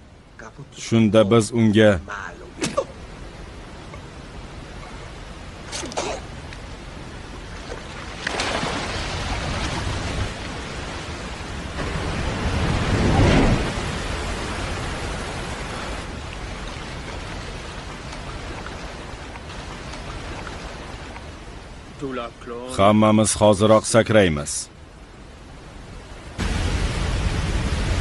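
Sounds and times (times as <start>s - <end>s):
waterfall rushing: 8.4s - 22.0s, 26.0s - 28.0s.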